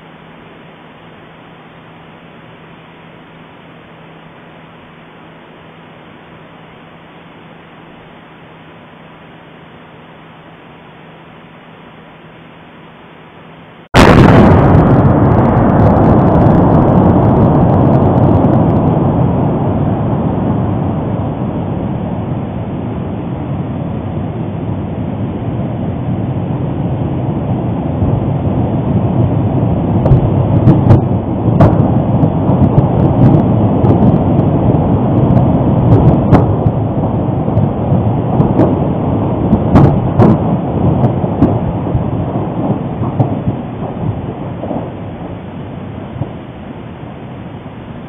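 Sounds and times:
volcano explosion deep rumble: 14.0s - 48.0s
sharp cracks: 37.5s - 41.8s, 42.7s - 44.1s.

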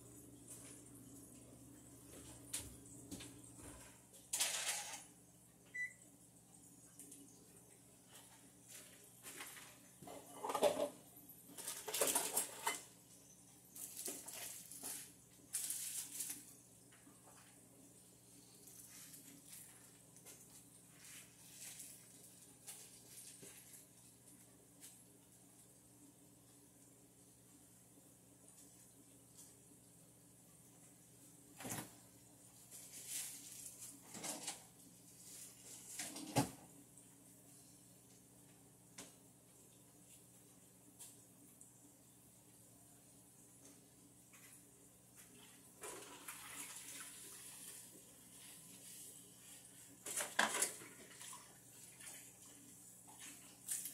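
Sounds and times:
faint steady hum: 0.0s - 53.9s
rustling and clattering: 3.2s - 5.1s, 8.3s - 12.9s.

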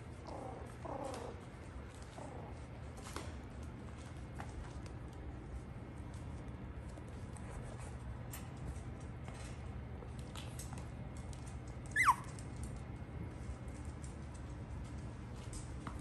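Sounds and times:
puppies scratching and clicking: 0.0s - 16.0s
puppy yelping: 0.2s - 1.4s, 11.8s - 12.4s.

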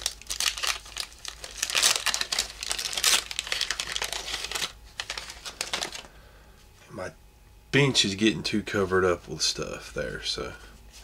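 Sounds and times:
wax paper wrapper crinkling: 0.0s - 6.1s.

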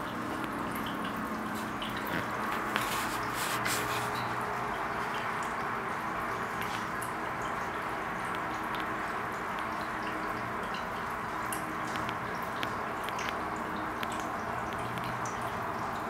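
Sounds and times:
water drips: 0.0s - 16.0s
water trickling: 0.0s - 16.0s.

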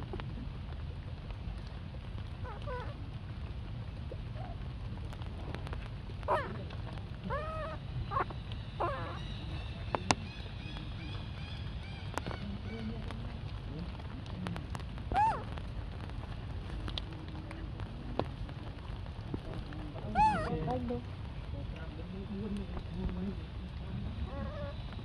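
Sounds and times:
steady low rumble: 0.0s - 25.0s
baby monkey calling: 7.3s - 9.3s, 15.1s - 15.4s, 20.1s - 20.6s.

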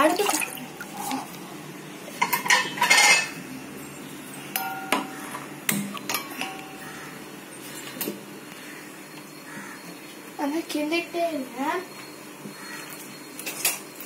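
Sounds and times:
metal pot and utensils clinking: 2.2s - 3.4s, 4.0s - 8.1s.

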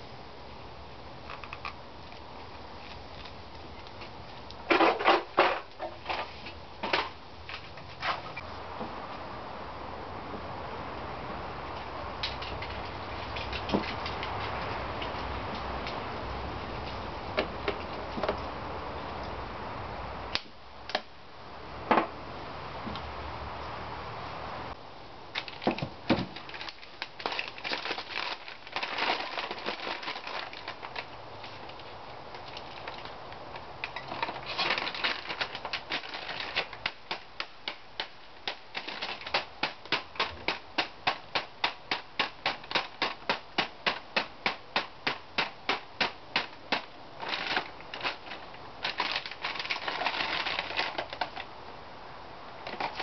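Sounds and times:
plastic bag rustling: 25.4s - 31.8s, 34.0s - 36.9s, 47.2s - 51.5s.

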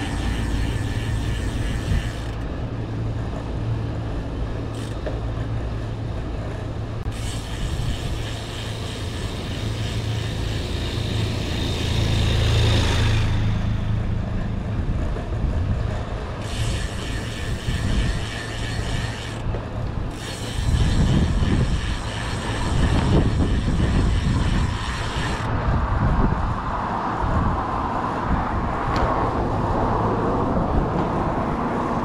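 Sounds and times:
wind on microphone: 0.0s - 2.8s, 7.0s - 32.0s
bicycle freehub ticking: 0.0s - 3.4s, 4.2s - 5.6s, 7.0s - 13.1s, 16.4s - 25.5s
low engine hum: 0.0s - 17.0s.

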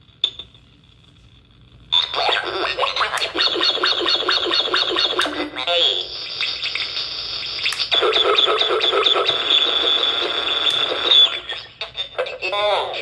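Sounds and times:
glitched electronic tone: 2.0s - 12.2s.

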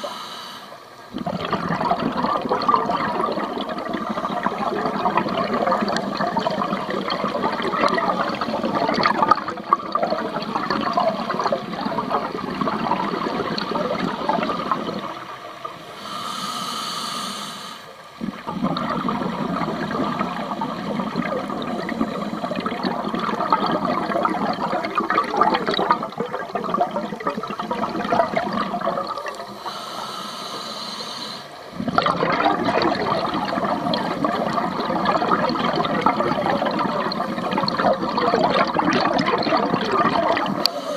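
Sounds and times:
regulator inhalation hiss: 0.0s - 1.1s, 15.7s - 18.2s, 29.3s - 31.8s, 40.6s - 40.9s
regulator exhaust bubbles underwater: 0.8s - 16.0s, 17.9s - 30.0s, 31.4s - 40.9s.

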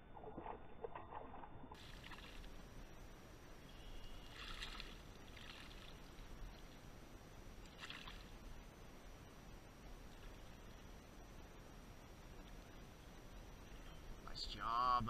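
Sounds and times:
fish splashing in water: 0.0s - 2.7s, 4.0s - 6.8s, 7.6s - 8.5s
steady outdoor hiss: 0.0s - 15.0s.

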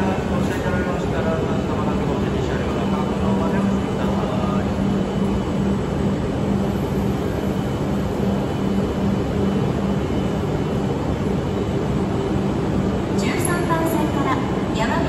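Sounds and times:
low hum: 0.0s - 15.0s
train standing at platform drone: 0.0s - 15.0s.

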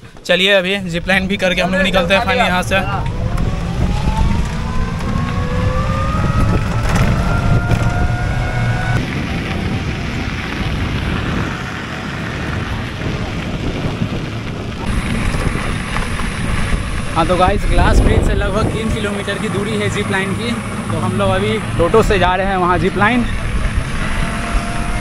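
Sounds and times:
road and wind noise: 0.0s - 25.0s
electric motor whine: 2.7s - 12.0s, 22.9s - 25.0s.

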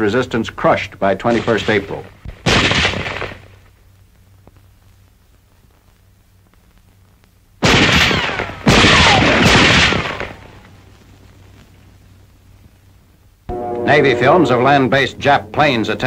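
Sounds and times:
loud explosions: 1.3s - 3.4s, 7.6s - 10.7s.

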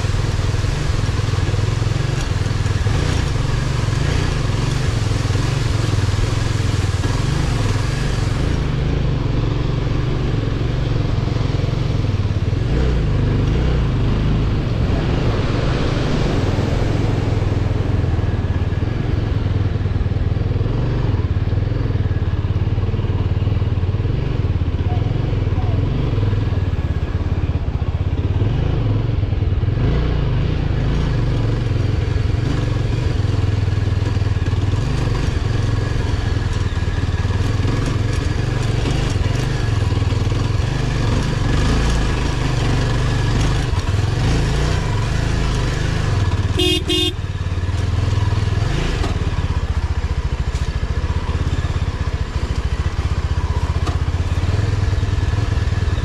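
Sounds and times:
motorcycle engine running: 0.0s - 56.0s
horn beep: 46.5s - 47.2s.

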